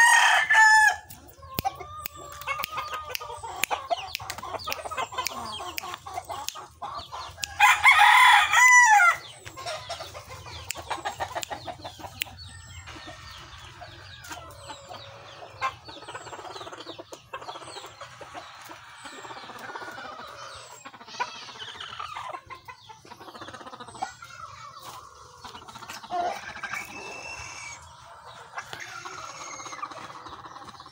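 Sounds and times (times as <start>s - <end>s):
rooster crowing: 0.0s - 1.1s, 7.4s - 9.2s
chicken clucks and calls: 0.0s - 30.9s.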